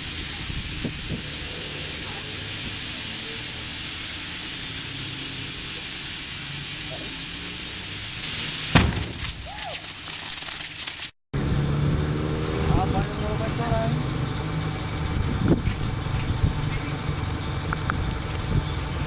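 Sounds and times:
air hissing into inner tube: 0:00.0 - 0:11.1
tube bursting bang: 0:08.4 - 0:09.7.

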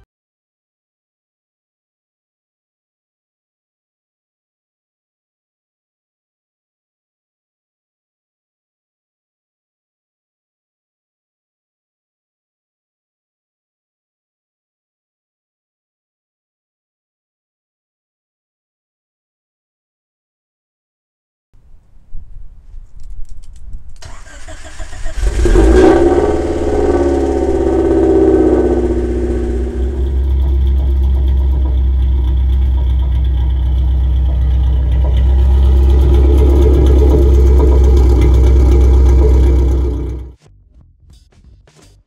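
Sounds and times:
car engine starting and idling: 0:24.0 - 0:42.0.

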